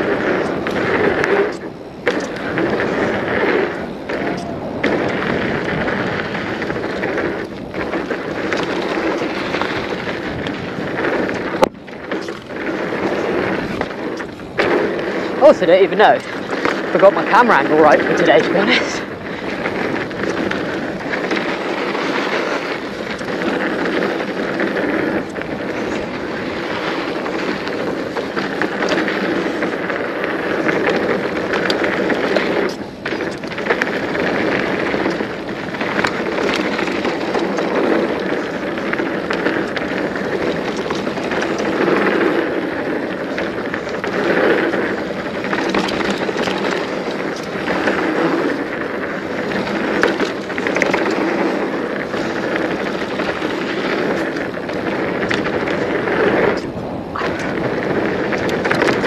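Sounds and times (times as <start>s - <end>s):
bike clattering over bumps: 0.0s - 59.0s
tyres rumbling over dirt and stones: 0.0s - 59.0s.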